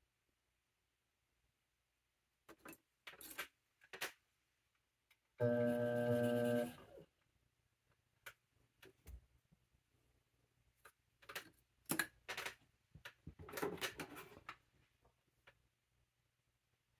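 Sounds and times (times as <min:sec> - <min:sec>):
potter's wheel motor humming: 0:05.4 - 0:06.8.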